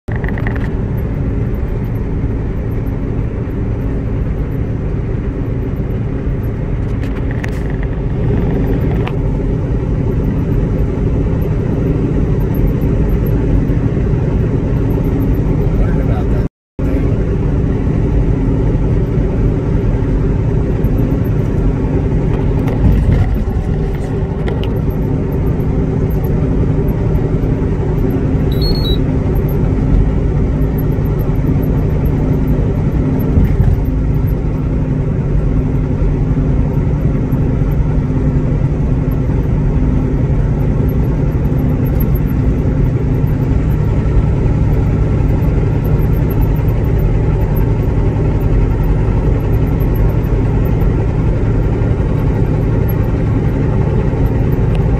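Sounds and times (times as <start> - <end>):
truck engine and tyres droning: 0.1 - 54.9.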